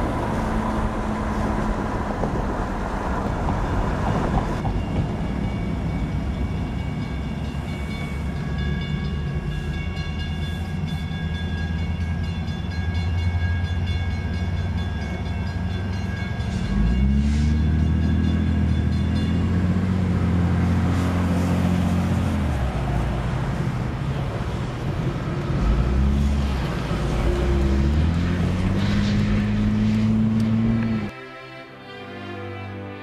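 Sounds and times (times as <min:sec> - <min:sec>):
commuter train rumbling: 0:00.0 - 0:33.0
crossing warning bell ringing: 0:04.6 - 0:21.7
car engine revving: 0:25.4 - 0:31.1.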